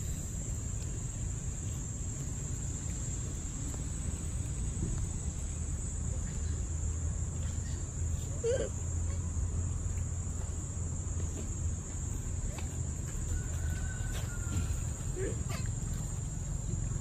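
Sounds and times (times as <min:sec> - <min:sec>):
insects droning: 0:00.0 - 0:17.0
low steady rumble: 0:00.0 - 0:17.0.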